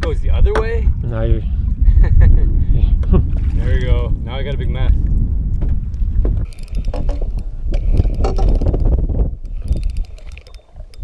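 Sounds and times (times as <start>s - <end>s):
wind rumble on microphone: 0.0s - 11.0s
fishing reel ticking: 6.4s - 11.0s.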